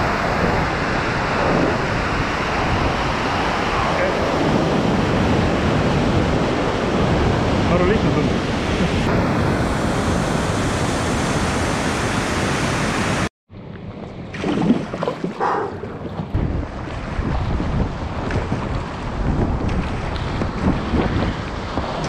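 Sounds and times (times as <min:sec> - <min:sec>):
wind buffeting microphone: 0:00.0 - 0:13.3, 0:13.9 - 0:22.0
water splashing around hull: 0:13.5 - 0:22.0.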